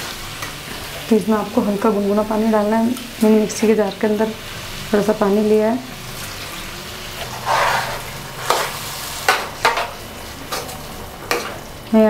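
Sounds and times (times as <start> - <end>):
steel spatula scraping a pan: 7.2 - 9.9.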